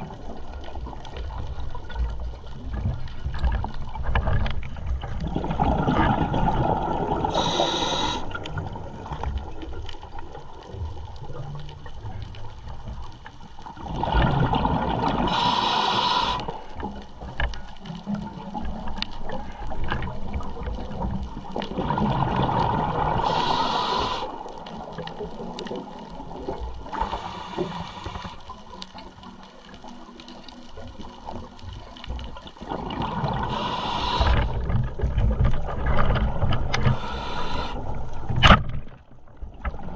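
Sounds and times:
exhaled bubbles gurgling underwater: 0:00.0 - 0:39.9
regulator hissing inhale: 0:07.3 - 0:08.5, 0:15.2 - 0:16.8, 0:23.1 - 0:24.5, 0:26.9 - 0:28.5, 0:33.4 - 0:34.6, 0:36.8 - 0:38.0.

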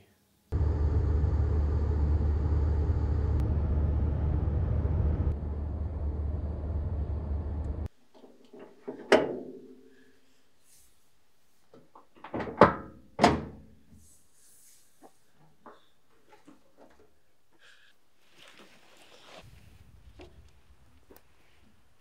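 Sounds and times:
van engine and road rumble: 0:00.5 - 0:07.9.

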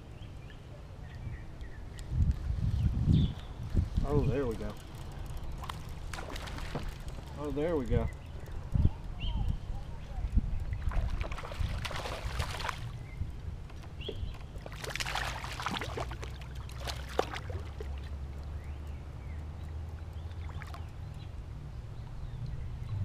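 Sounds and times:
fish splashing in water: 0:05.6 - 0:07.0, 0:10.7 - 0:13.0, 0:14.6 - 0:18.1.

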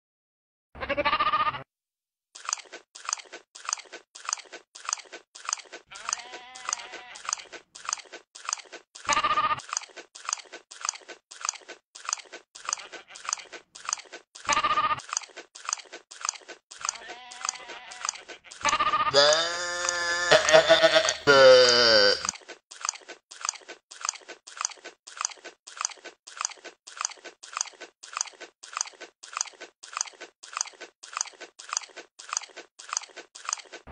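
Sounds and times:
goat bleating: 0:00.8 - 0:01.7, 0:05.9 - 0:07.4, 0:09.1 - 0:09.6, 0:12.7 - 0:13.4, 0:14.5 - 0:15.0, 0:16.9 - 0:22.3
goat chewing with crunching: 0:02.4 - 0:33.9.

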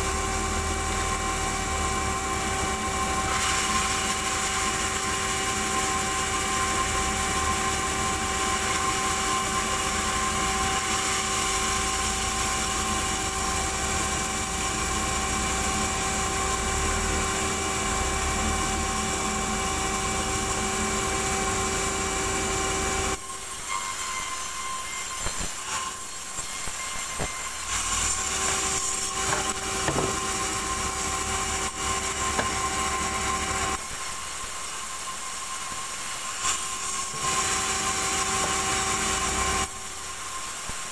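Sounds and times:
band saw blade sawing log: 0:00.0 - 0:33.8
knocks of handled wood slab: 0:29.2 - 0:30.4, 0:32.3 - 0:32.6.

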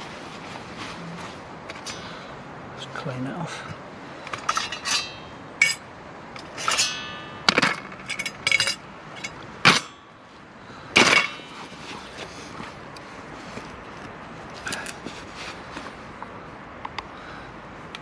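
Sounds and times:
metal pot and lid clinking: 0:04.4 - 0:05.8, 0:06.4 - 0:10.0.

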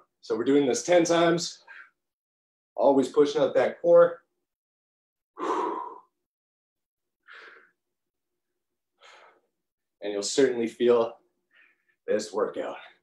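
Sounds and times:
faint breaths: 0:05.4 - 0:06.2, 0:09.0 - 0:09.5.

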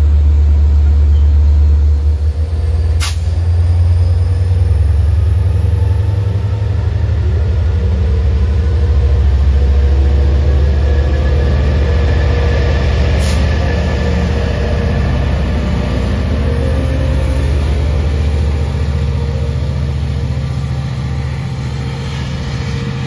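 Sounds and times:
diesel train engine rumbling: 0:00.0 - 0:23.0
brief hiss: 0:03.0 - 0:03.4.

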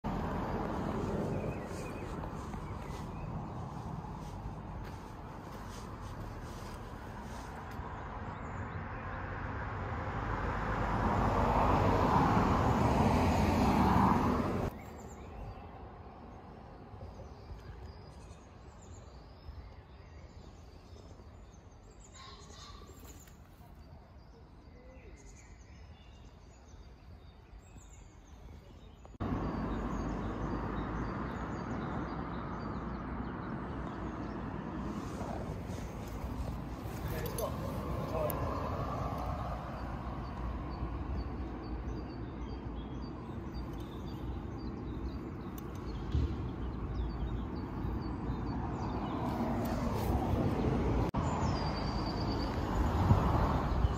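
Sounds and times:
small birds chirping: 0:00.0 - 0:09.4, 0:13.6 - 0:53.9.

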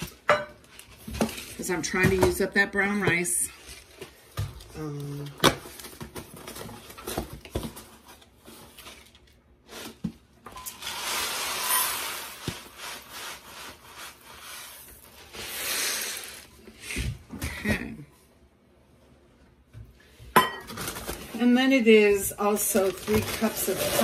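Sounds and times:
rice grains pouring into metal cup: 0:10.8 - 0:12.4.

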